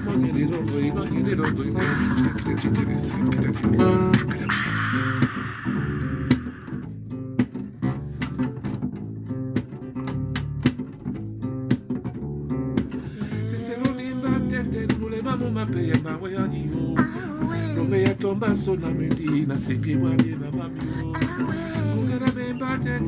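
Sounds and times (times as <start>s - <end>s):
person singing: 0.0s - 6.9s, 13.0s - 23.0s
plucked guitar: 0.0s - 23.0s.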